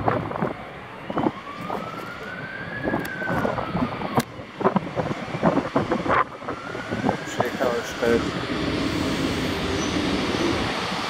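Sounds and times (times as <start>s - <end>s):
ambulance siren wailing: 0.0s - 11.0s.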